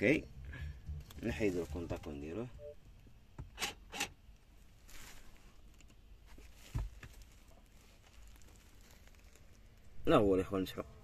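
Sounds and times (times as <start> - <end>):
low steady hum: 0.0 - 11.0
soft rustle: 1.0 - 2.5, 4.4 - 10.8.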